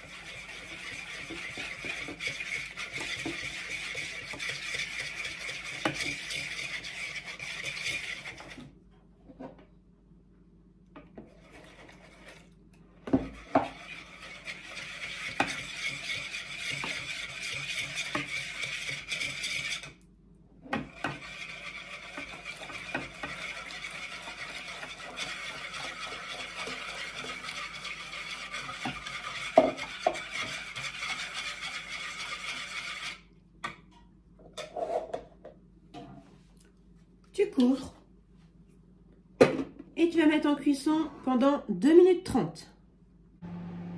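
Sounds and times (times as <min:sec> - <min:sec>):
whisk scraping in bowl: 0:00.0 - 0:08.7, 0:11.2 - 0:12.6, 0:13.2 - 0:20.0, 0:20.7 - 0:33.3
whisk knocking against bowl: 0:00.4 - 0:06.8, 0:14.5 - 0:19.4, 0:22.1 - 0:31.4.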